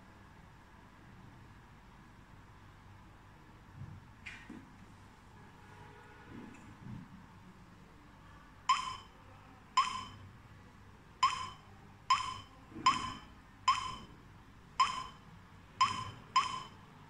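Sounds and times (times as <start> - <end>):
keypad short beeps: 8.7 - 9.2, 9.8 - 10.3, 11.2 - 14.2, 14.8 - 15.2, 15.8 - 16.9.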